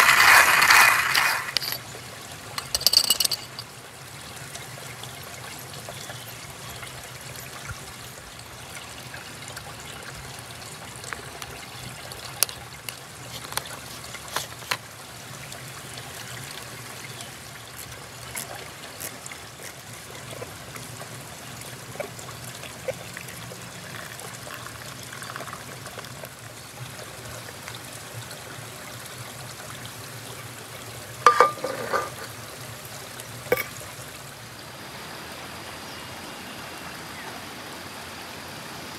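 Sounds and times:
river flowing over rocks: 0.0 - 3.9, 31.0 - 38.9.

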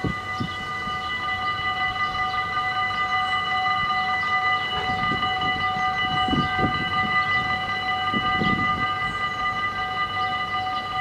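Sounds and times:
level crossing bells ringing: 0.0 - 11.0.

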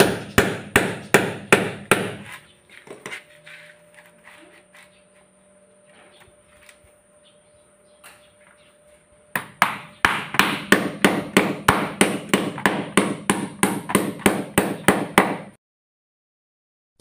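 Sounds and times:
hammer knocking on wood: 0.0 - 2.2, 9.4 - 15.5.

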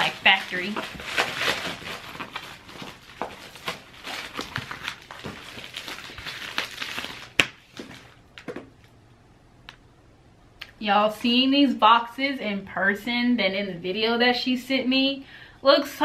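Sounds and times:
packaging rustling and crinkling: 0.0 - 8.8.

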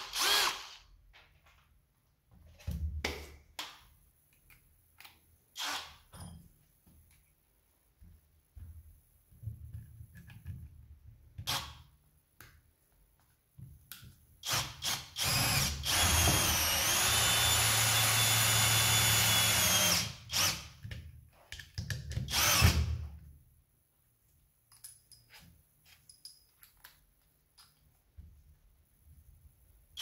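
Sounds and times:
cordless drill driving screw into wood: 0.0 - 0.9, 5.6 - 6.0, 11.4 - 11.8, 14.4 - 20.8, 22.2 - 23.0.

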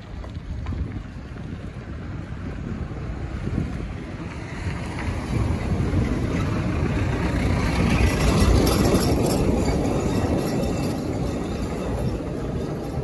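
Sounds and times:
road noise: 0.0 - 13.0
wind buffeting microphone: 0.0 - 13.0.

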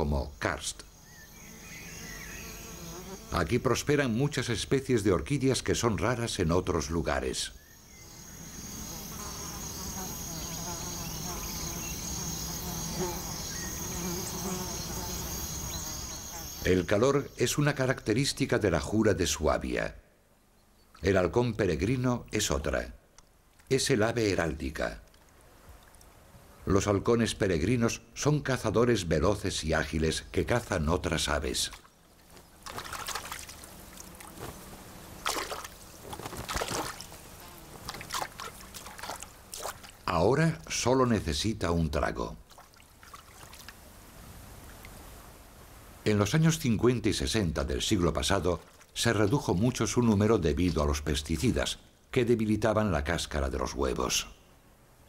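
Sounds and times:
short wavering insect buzzes: 1.0 - 3.4, 7.8 - 16.7
low insect buzzing drone: 1.0 - 3.5, 7.7 - 16.7
high-pitched insect chirring: 7.6 - 16.9
bird splashing water: 31.7 - 34.6, 35.2 - 40.1, 42.4 - 43.8, 48.6 - 49.0.

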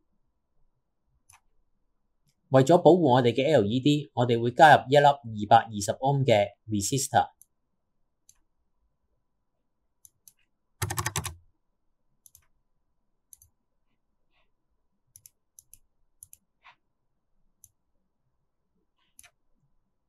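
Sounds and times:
computer mouse clicks: 1.2 - 1.5, 8.2 - 8.5, 10.0 - 11.4, 12.2 - 12.6, 13.3 - 13.6, 15.1 - 16.8, 17.6 - 17.8, 19.0 - 19.4
keyboard typing: 10.1 - 11.4.

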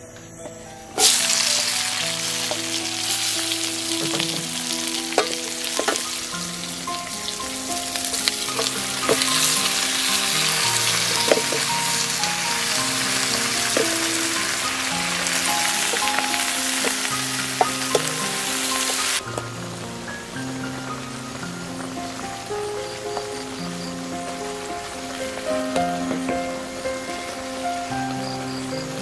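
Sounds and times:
vegetables sizzling in hot oil: 0.4 - 29.0
spatula knocking on pan: 5.1 - 6.1, 8.2 - 9.6, 10.8 - 11.8.

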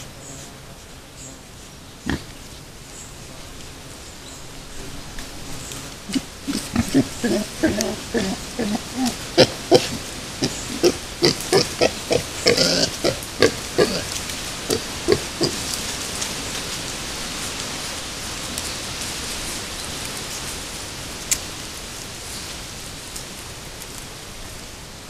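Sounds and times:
steady hiss: 0.0 - 25.0
piglets grunting: 6.0 - 15.8.

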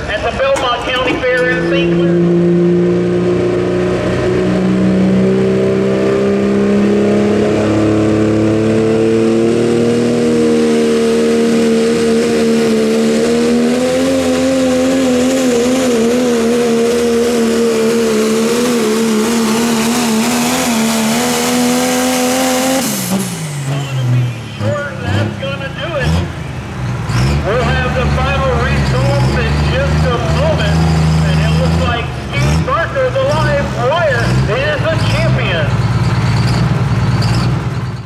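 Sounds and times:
truck engine at full throttle: 0.0 - 38.0.

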